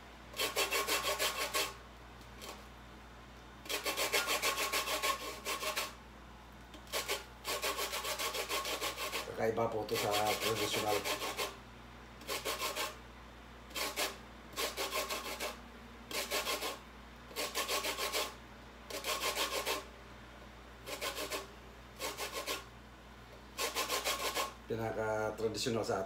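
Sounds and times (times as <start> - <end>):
peel rasping on metal grater: 0.4 - 1.8, 3.7 - 6.0, 6.9 - 11.6, 12.2 - 13.0, 13.7 - 19.8, 20.9 - 22.7, 23.6 - 24.6.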